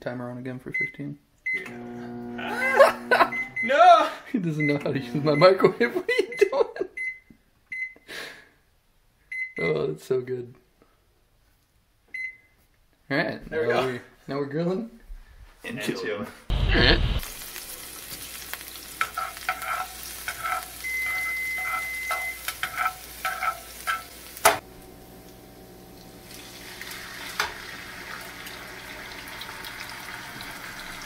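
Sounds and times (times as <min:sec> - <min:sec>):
garlic sizzling in hot oil: 0:16.5 - 0:31.0
metal tongs stirring in pan: 0:17.4 - 0:24.6.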